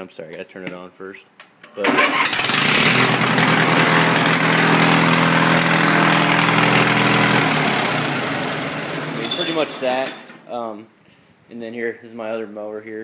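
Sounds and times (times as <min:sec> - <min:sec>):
riding lawn mower engine: 0:01.8 - 0:10.4.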